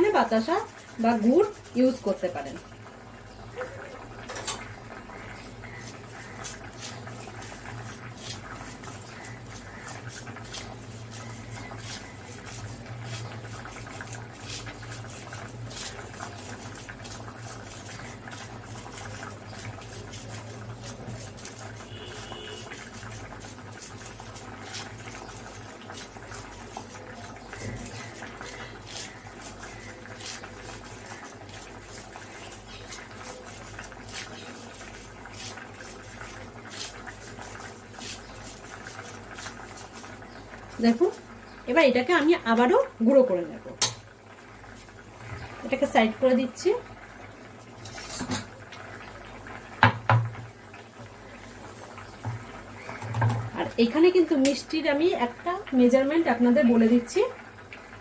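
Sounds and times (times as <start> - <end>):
spoon scraping mesh sieve: 5.3 - 40.4, 47.8 - 48.5.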